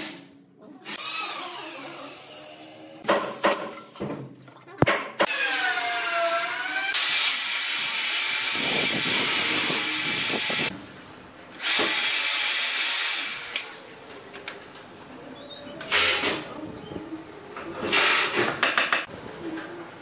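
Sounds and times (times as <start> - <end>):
electric drill boring into wood: 5.3 - 10.7.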